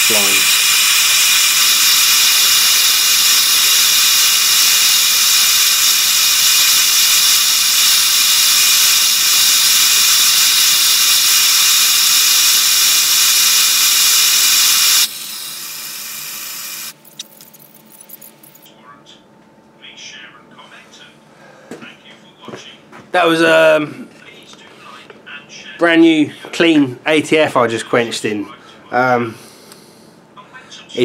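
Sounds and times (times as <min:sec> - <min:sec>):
blowtorch flame hissing: 0:00.0 - 0:17.0.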